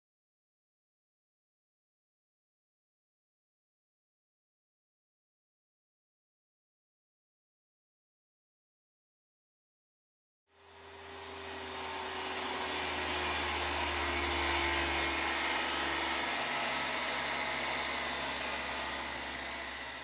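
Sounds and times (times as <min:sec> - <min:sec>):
table saw cutting wood: 0:10.5 - 0:20.0.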